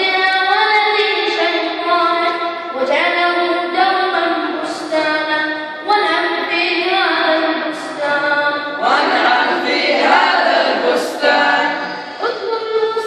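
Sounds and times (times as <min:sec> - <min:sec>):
boys singing unaccompanied: 0:05.9 - 0:13.0.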